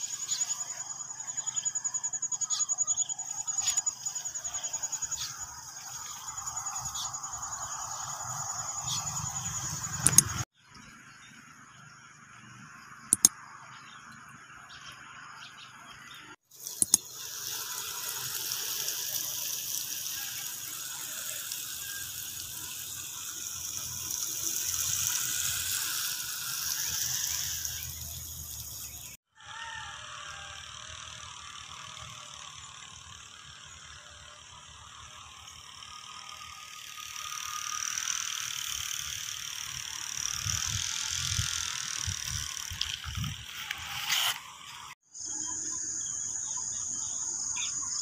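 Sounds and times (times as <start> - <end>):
hose water spraying: 0.0 - 2.6, 3.2 - 10.5, 16.4 - 29.2, 36.4 - 45.0
faint outdoor background: 0.0 - 48.0
sharp clicks: 9.9 - 10.4, 13.1 - 13.4, 16.7 - 17.1.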